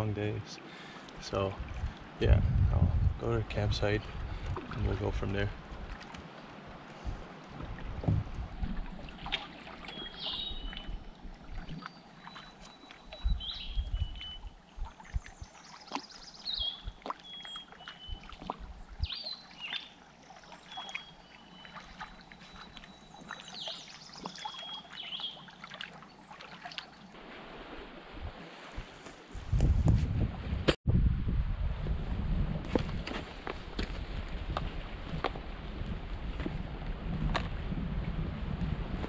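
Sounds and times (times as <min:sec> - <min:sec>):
paddle water swishing: 0:04.0 - 0:30.7, 0:32.6 - 0:39.0
bird chirping: 0:09.9 - 0:11.0, 0:20.6 - 0:25.4.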